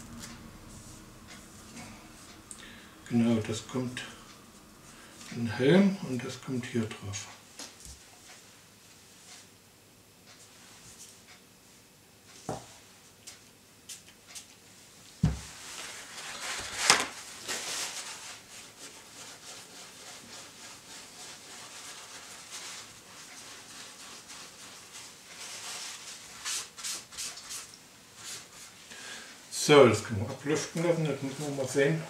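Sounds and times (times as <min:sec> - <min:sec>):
knock on tabletop: 0:15.2 - 0:15.4
tissue rubbing on small parts: 0:15.5 - 0:28.8, 0:30.5 - 0:32.0.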